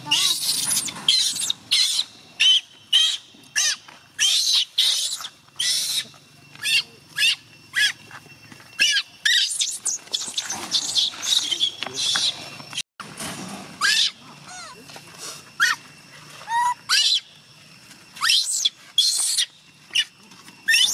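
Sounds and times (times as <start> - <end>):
infant monkey screaming: 0.0 - 8.0, 8.8 - 12.4, 13.8 - 14.8, 15.6 - 17.3, 18.2 - 20.1, 20.7 - 20.9.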